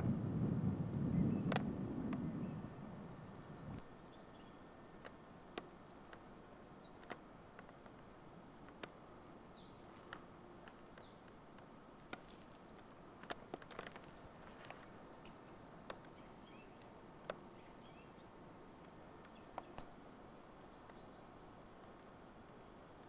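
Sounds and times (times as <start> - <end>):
low rumble: 0.0 - 3.8
distant bird chirps: 0.0 - 7.2, 18.9 - 21.6
small clicks: 10.0 - 16.2.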